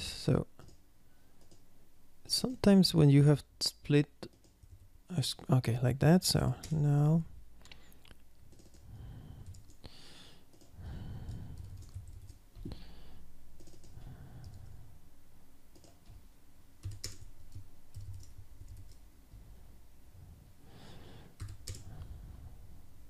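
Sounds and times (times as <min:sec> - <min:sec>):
computer keyboard typing: 0:01.4 - 0:01.6, 0:08.5 - 0:08.8, 0:09.4 - 0:09.9, 0:10.5 - 0:12.8, 0:13.6 - 0:14.7, 0:15.7 - 0:16.2, 0:16.8 - 0:19.0, 0:21.4 - 0:21.9.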